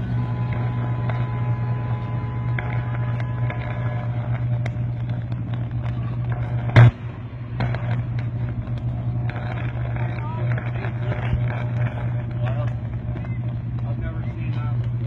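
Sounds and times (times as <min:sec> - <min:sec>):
power line arcing buzz: 0:00.0 - 0:15.0
sharp electrical crack: 0:00.0 - 0:15.0.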